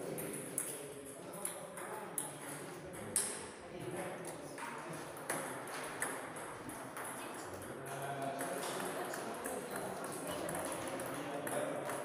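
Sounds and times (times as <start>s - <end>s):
murmur of voices: 6.9s - 12.0s.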